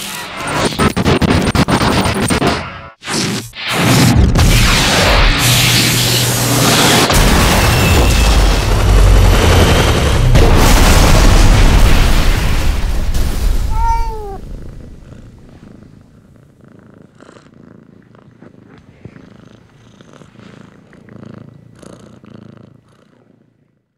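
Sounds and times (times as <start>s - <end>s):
explosion with deep rumble: 6.8s - 15.5s
cat meow: 13.7s - 14.5s
cat purring: 13.7s - 23.9s.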